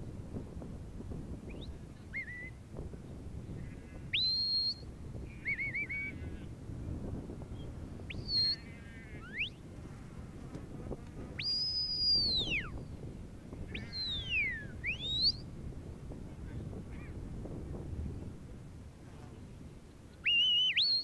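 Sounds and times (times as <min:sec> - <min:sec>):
whistle commands: 0:04.2 - 0:04.8, 0:05.5 - 0:06.1, 0:08.1 - 0:08.6, 0:11.4 - 0:12.7, 0:13.8 - 0:15.4, 0:20.3 - 0:21.0.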